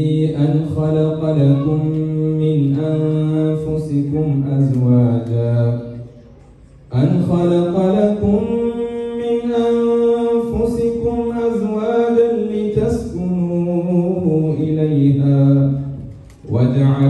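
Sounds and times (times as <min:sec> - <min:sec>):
man chanting into a microphone: 0:00.0 - 0:17.0.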